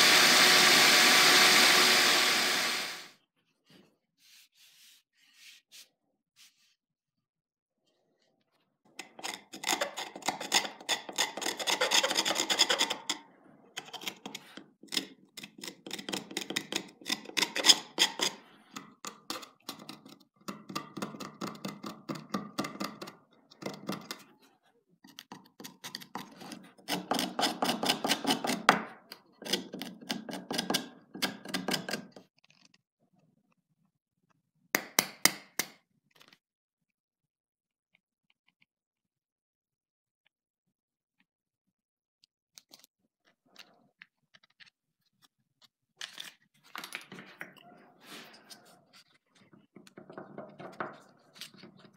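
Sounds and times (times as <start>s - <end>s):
knife scraping wooden handle: 9.0s - 13.2s, 13.8s - 18.6s, 25.7s - 28.7s.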